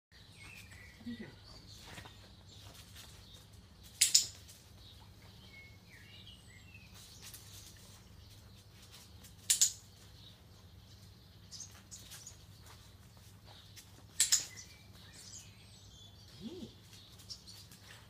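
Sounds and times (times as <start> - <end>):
faint bird chirps: 14.2 - 17.8.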